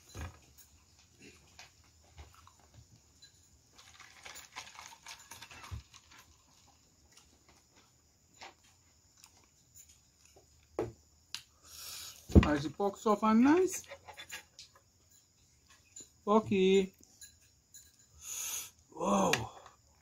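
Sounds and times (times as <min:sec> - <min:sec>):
soda pouring and fizzing: 0:03.8 - 0:06.8.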